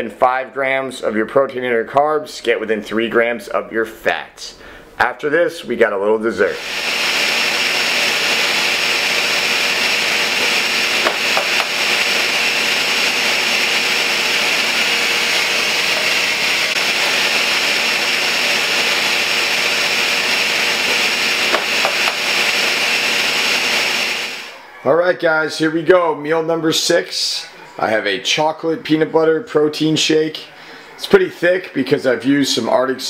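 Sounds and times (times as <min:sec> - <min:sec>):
blender running: 0:06.5 - 0:24.7.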